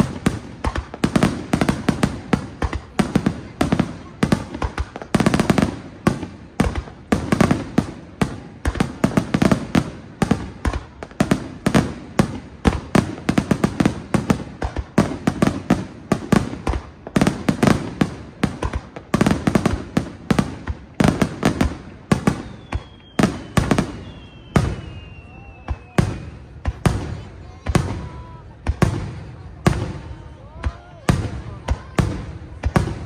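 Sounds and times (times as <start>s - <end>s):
faint falling whistles: 22.3s - 26.4s.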